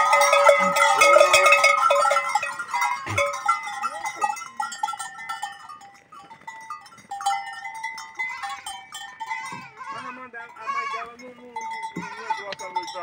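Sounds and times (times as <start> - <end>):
goats bleating: 0.0 - 4.4, 8.0 - 13.0.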